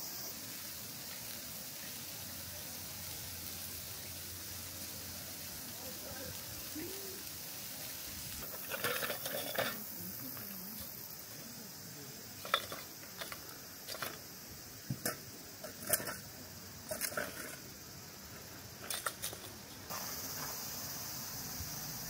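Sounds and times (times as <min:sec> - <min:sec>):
grill clattering: 0:08.3 - 0:11.4, 0:12.4 - 0:20.5
tongs clinking on charcoal: 0:08.4 - 0:10.9, 0:12.4 - 0:14.3, 0:15.0 - 0:17.7, 0:18.8 - 0:19.6.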